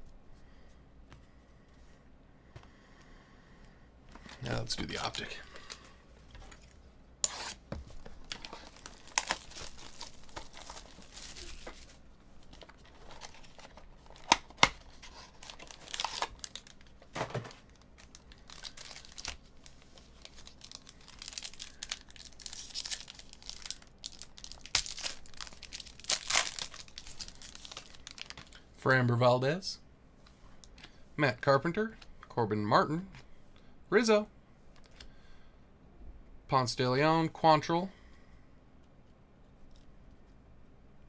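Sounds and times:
wrapper and cardboard tearing: 7.2 - 28.6.

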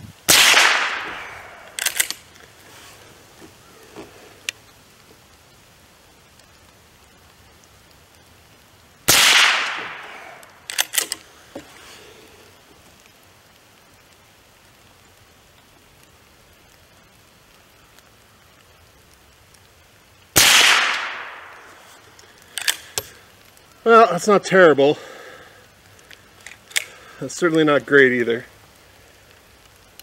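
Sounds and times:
rifle shots: 0.3 - 2.2, 9.1 - 11.2, 20.4 - 21.5.

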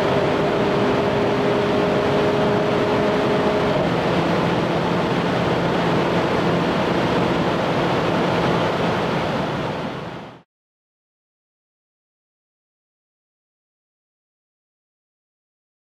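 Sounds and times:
car engine pulling hard: 0.0 - 10.1
wind and road noise: 0.0 - 10.4.

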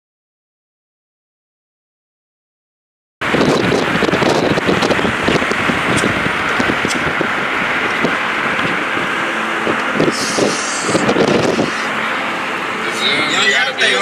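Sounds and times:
car road and wind noise: 3.2 - 14.0.

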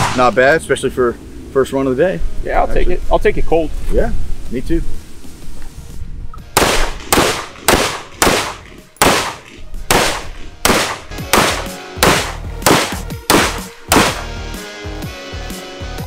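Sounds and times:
rifle gunshots: 6.5 - 14.3.

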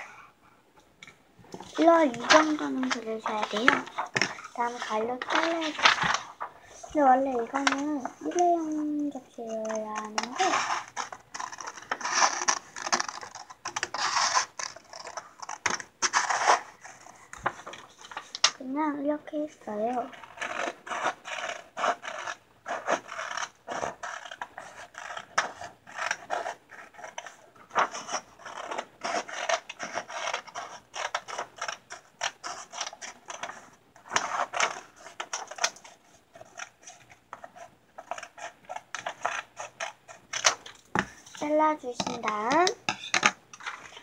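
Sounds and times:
paper rustling: 1.5 - 18.6, 19.8 - 44.0
scissors snipping paper: 1.8 - 6.3, 7.3 - 17.0, 19.9 - 44.0.

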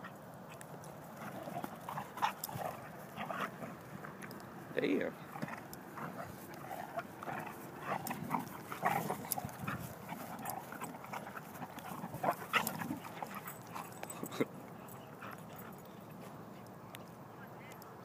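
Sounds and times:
dogs play-fighting: 0.0 - 16.7.

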